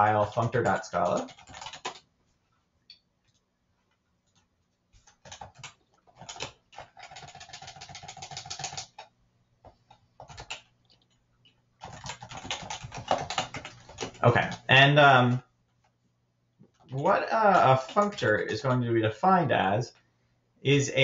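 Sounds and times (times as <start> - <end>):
computer keyboard typing: 0.0 - 2.1, 3.3 - 15.4, 16.8 - 18.9.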